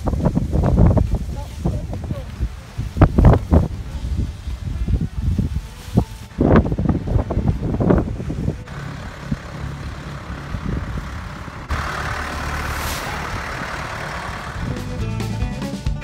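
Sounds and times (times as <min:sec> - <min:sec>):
music: 0:03.2 - 0:08.7, 0:14.3 - 0:16.0
tractor engine driving past: 0:06.5 - 0:15.8.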